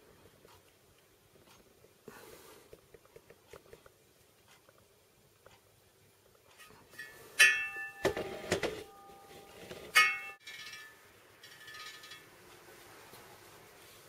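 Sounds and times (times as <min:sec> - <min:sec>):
metallic clang of wheel spokes: 0:06.6 - 0:08.3, 0:09.9 - 0:12.4.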